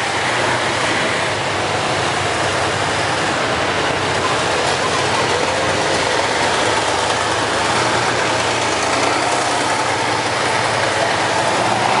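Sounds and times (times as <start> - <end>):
tank engines running: 0.0 - 12.0.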